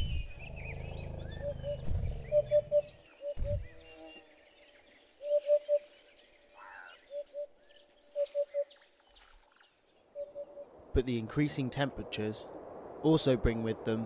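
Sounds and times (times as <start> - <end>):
bird low hooting: 0.0 - 4.5, 5.2 - 8.8, 10.1 - 10.8
bird trill: 0.0 - 8.8, 10.1 - 10.7
birds chirping: 0.0 - 14.0.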